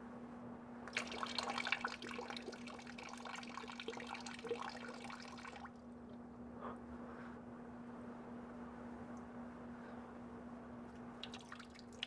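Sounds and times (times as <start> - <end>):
faint steady hum: 0.0 - 12.0
water running into a bucket: 0.9 - 5.7, 11.2 - 12.0.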